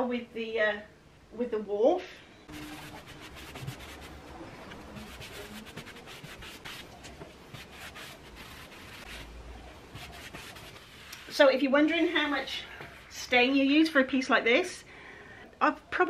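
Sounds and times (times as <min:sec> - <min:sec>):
sponge scrubbing wooden tabletop: 0:02.5 - 0:11.6.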